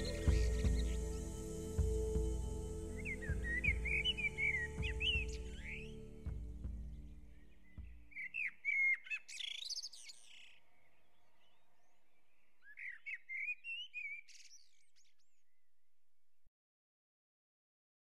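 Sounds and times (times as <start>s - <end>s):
bird chirping: 0.0s - 15.8s.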